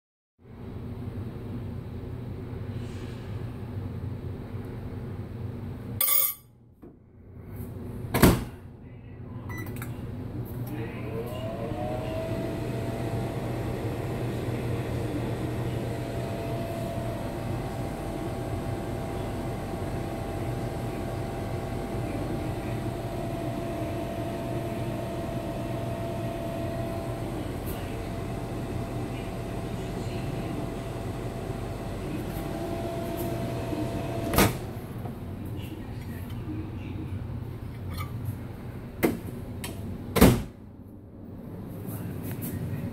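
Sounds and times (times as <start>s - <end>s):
microwave oven humming: 0.4s - 6.4s, 7.4s - 42.9s
microwave door shutting: 33.2s - 34.7s.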